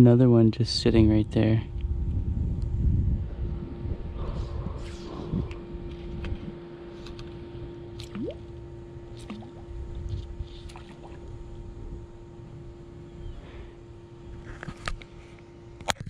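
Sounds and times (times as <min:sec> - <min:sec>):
steady low hum: 0:00.0 - 0:16.0
low rumble: 0:01.0 - 0:07.2.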